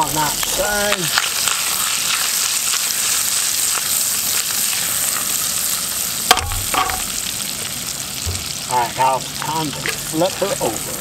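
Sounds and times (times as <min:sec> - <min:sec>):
fish sizzling in a pan: 0:00.0 - 0:11.0
metal pan clacking on grate: 0:06.3 - 0:07.1.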